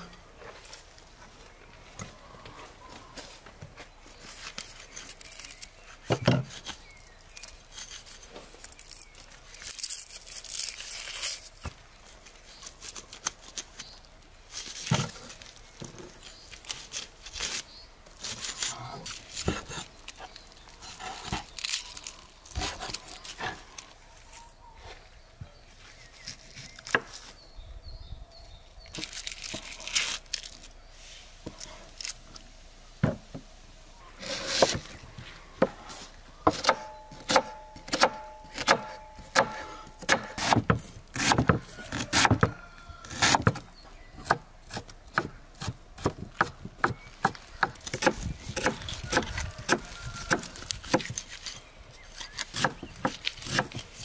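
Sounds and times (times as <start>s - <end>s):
cleaver chopping on wooden board: 36.4s - 43.6s.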